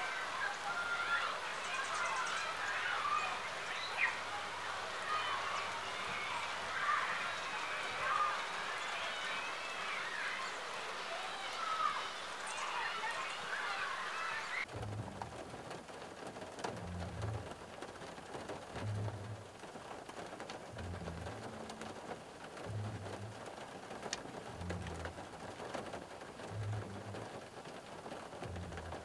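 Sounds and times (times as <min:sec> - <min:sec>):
rain on car roof: 0:00.0 - 0:29.0
faint low pulse: 0:16.7 - 0:17.6, 0:18.8 - 0:19.4, 0:20.8 - 0:22.0, 0:22.6 - 0:23.5, 0:26.5 - 0:27.3, 0:28.4 - 0:29.0.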